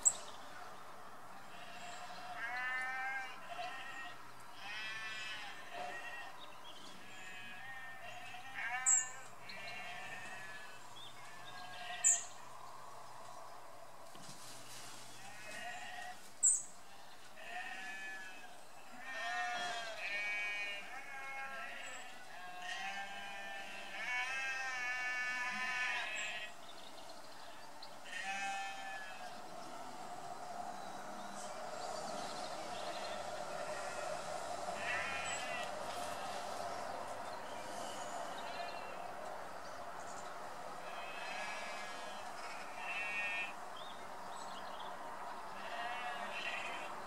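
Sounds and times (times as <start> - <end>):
sheep bleating: 1.5 - 6.4, 7.2 - 12.3, 17.4 - 26.5, 28.0 - 29.4, 34.8 - 36.3, 40.8 - 43.6, 45.6 - 47.0.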